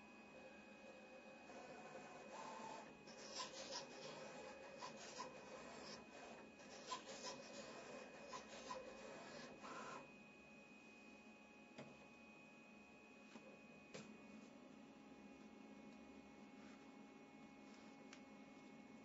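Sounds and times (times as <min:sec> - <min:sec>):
cutter scratching paper: 0:01.4 - 0:10.0.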